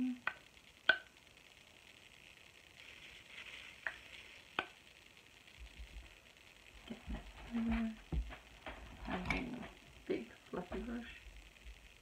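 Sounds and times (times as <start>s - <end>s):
powder rustling in jar: 2.8s - 4.6s.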